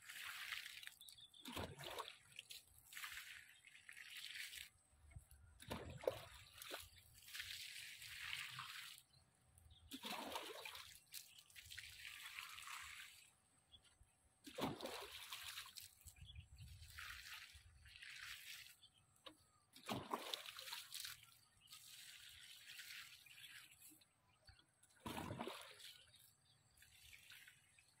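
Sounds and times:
water splashing onto plants: 0.0 - 4.7, 5.6 - 9.1, 9.9 - 13.2, 14.5 - 16.2, 16.8 - 18.8, 19.8 - 23.9, 25.0 - 26.2
water sloshing: 0.0 - 9.1, 9.8 - 13.3, 14.4 - 28.0.

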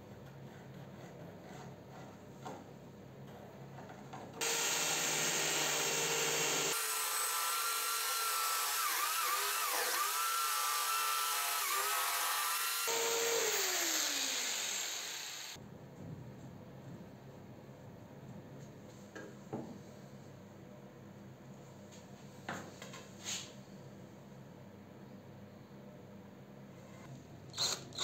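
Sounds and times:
electric jigsaw cutting wood: 4.4 - 15.6.

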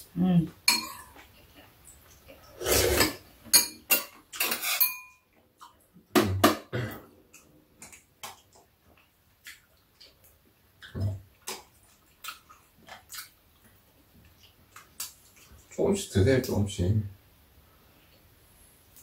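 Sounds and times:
cutlery clinking on steel dishes: 0.7 - 1.2, 3.0 - 5.3.

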